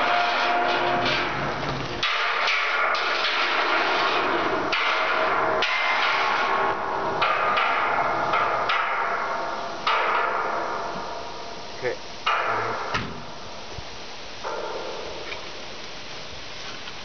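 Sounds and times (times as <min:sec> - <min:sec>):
steel sculpture clanking: 0:00.0 - 0:11.6, 0:12.2 - 0:13.4.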